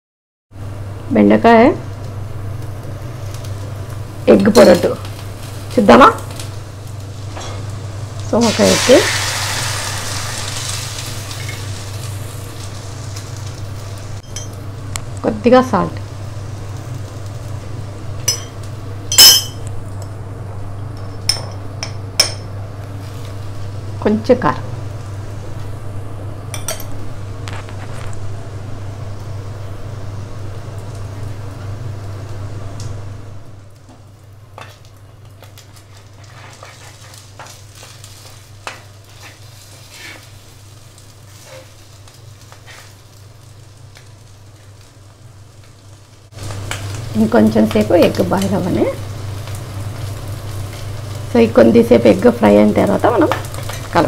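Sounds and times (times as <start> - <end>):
food sizzling in a pan: 0.6 - 54.0
steady low hum: 0.6 - 54.0
steel utensils clinking: 19.1 - 19.6.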